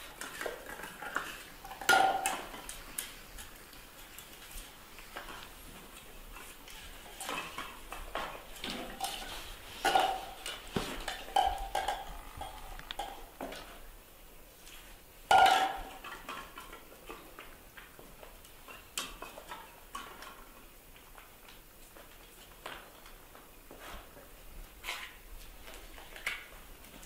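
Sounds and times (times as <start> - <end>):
plastic bottle clattering on tiles: 0.0 - 2.8, 7.2 - 13.7, 15.3 - 16.8.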